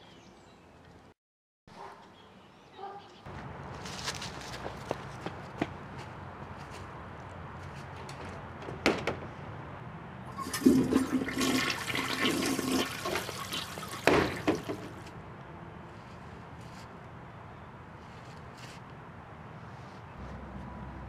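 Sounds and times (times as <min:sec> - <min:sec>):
plastic door banging: 0:08.2 - 0:09.4
toilet flushing: 0:10.3 - 0:15.0.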